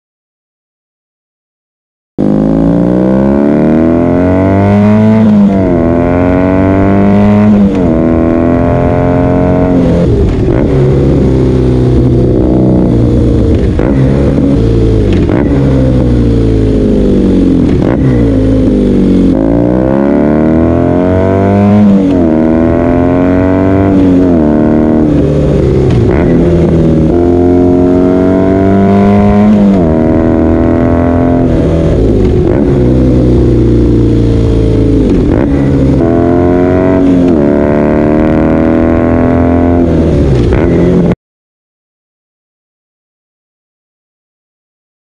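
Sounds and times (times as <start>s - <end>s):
motorcycle engine accelerating through gears: 2.2s - 41.2s.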